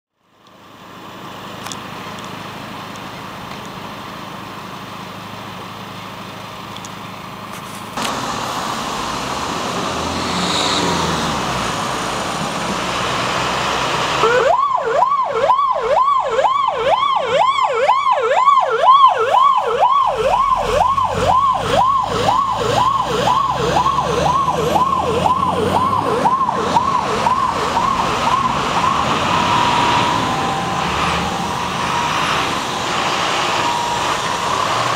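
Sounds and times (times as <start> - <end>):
engine noise: 0.2 - 34.9
fire engine siren wailing: 8.0 - 34.9.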